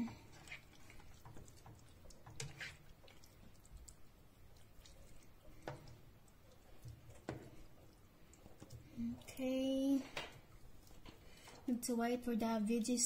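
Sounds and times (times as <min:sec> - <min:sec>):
spatula scraping frying pan: 0:00.0 - 0:03.4.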